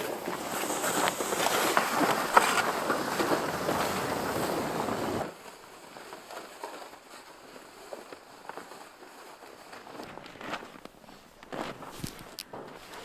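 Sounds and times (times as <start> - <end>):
plastic sled scraping on snow: 0.0 - 13.0
boots crunching on snow: 6.6 - 13.0.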